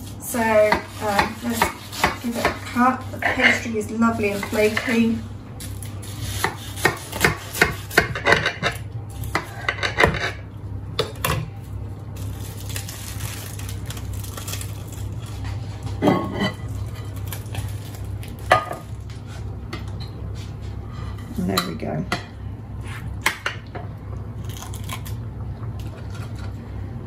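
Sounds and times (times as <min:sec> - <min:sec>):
knife cutting crackly pie crust: 0:00.7 - 0:05.0, 0:05.8 - 0:10.4.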